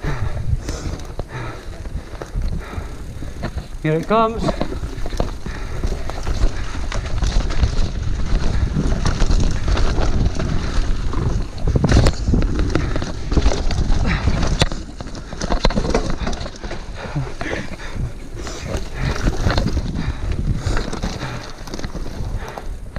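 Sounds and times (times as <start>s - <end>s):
bike chain and frame clattering: 0.0s - 22.8s
bike tyres over dirt and roots: 0.0s - 22.9s.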